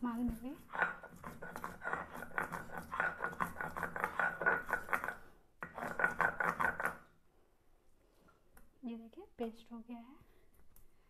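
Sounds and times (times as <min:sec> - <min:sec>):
stone roller grinding on stone slab: 0:00.6 - 0:07.1.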